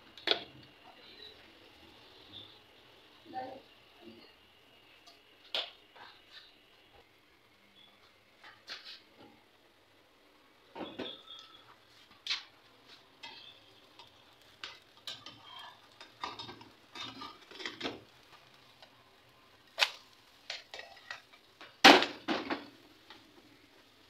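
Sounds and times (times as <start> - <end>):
spatula scraping a frying pan: 13.2 - 18.2.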